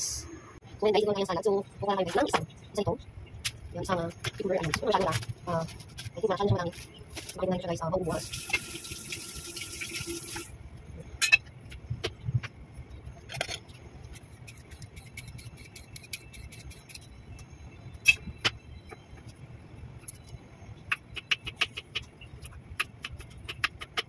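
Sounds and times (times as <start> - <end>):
tap water running: 8.1 - 10.5.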